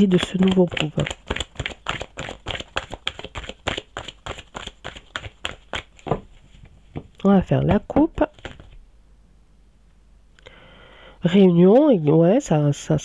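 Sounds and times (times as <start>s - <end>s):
cards being shuffled: 0.0s - 6.7s, 7.6s - 8.8s.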